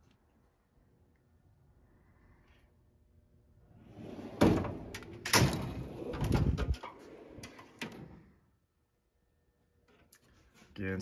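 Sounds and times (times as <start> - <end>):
drawer rolling on slides: 3.8 - 8.3
drawer shutting with clunks: 4.1 - 8.2.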